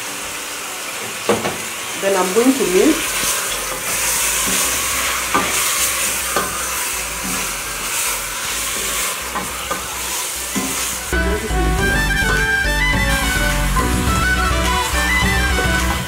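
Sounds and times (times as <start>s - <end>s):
meat sizzling in oil: 0.0s - 16.0s
background music: 10.4s - 16.0s.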